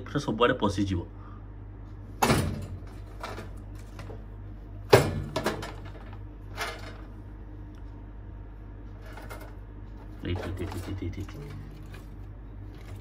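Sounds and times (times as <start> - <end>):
drawer contents clattering: 10.2 - 13.0.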